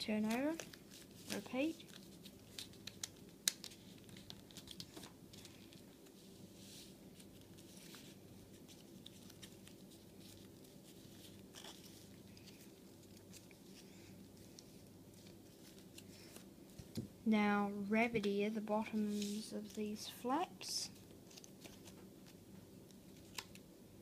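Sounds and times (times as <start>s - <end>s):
paper rustling and crinkling: 0.0s - 17.0s, 20.9s - 22.4s.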